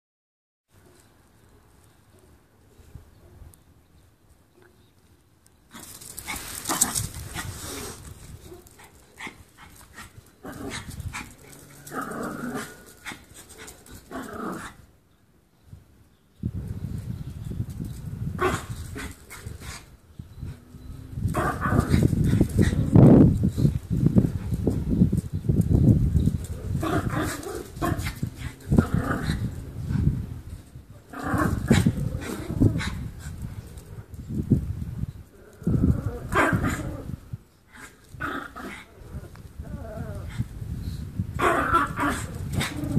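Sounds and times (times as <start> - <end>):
small dogs growling: 5.7 - 14.8, 26.4 - 33.1, 35.3 - 40.6, 41.4 - 42.9.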